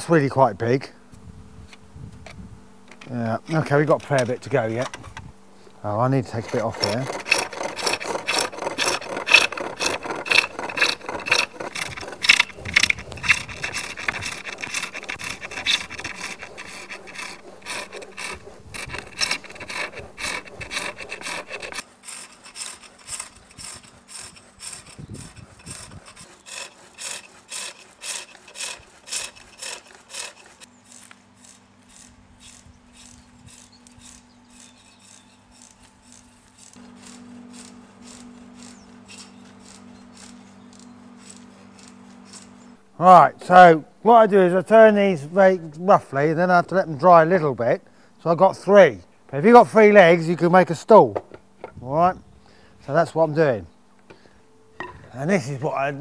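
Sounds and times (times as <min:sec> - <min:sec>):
lathe tool scraping wood: 0:02.9 - 0:05.0, 0:05.6 - 0:43.2.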